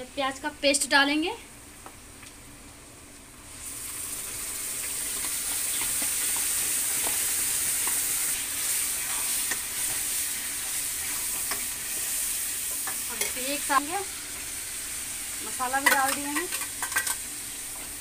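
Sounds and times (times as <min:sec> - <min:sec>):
onion paste sizzling in oil: 0:00.0 - 0:18.0
spoon stirring in pan: 0:05.1 - 0:13.9.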